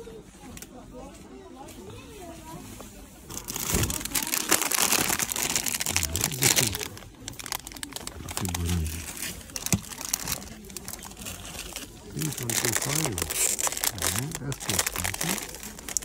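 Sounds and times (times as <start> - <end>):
plastic bags crinkling: 3.2 - 16.0.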